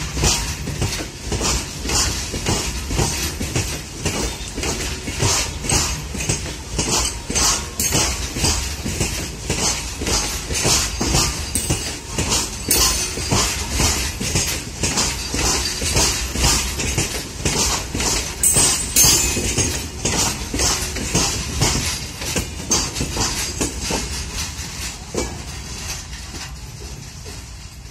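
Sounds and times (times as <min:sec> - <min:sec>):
freight wagons rumbling: 0:00.0 - 0:27.9
wheels clacking over rail joints: 0:00.0 - 0:27.9.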